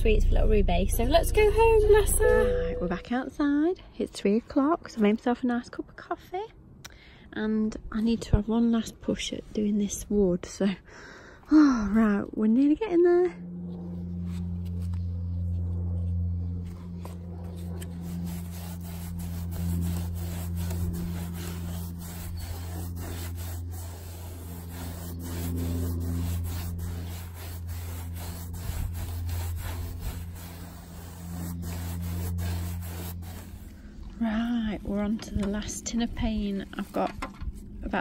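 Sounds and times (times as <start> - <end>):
steady low hum: 0.0 - 4.0, 11.2 - 38.0
paintbrush scrubbing on wood: 16.6 - 35.6.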